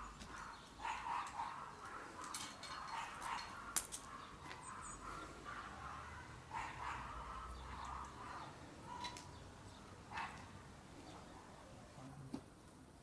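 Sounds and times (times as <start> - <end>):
harness buckles clinking: 0.2 - 4.2.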